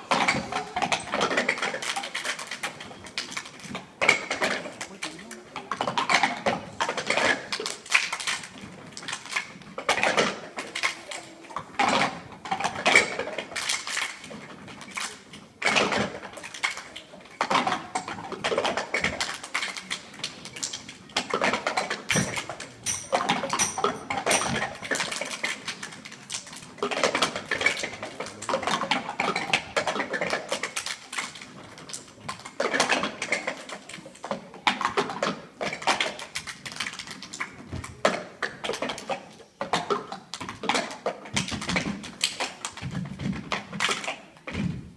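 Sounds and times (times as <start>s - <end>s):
cups knocking on stage floor: 21.8s - 25.1s.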